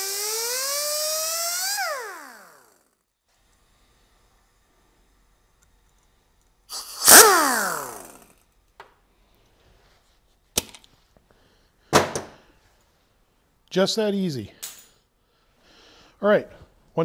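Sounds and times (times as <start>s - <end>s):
pneumatic cut-off wheel spinning down: 0.0s - 3.0s, 6.7s - 8.4s.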